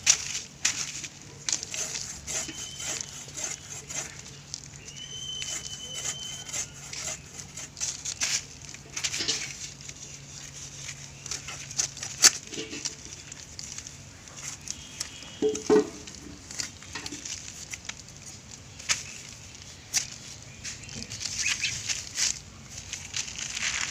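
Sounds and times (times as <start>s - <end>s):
fish scraping against blade: 1.6s - 4.2s, 5.4s - 8.1s.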